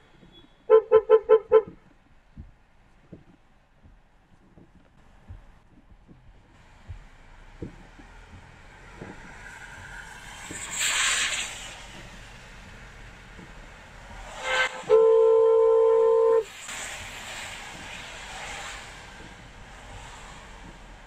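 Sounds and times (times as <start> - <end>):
car horn blaring: 0.3 - 1.8, 14.4 - 16.5
tyres hissing on wet road: 6.5 - 21.0.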